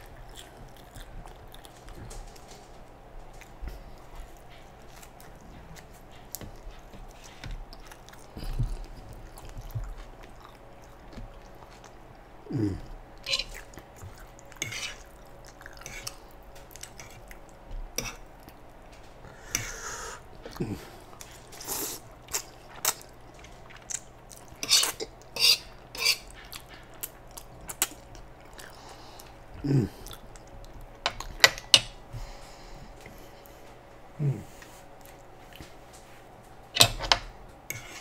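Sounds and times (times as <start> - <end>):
metal fork scraping griddle pan: 24.6 - 26.3.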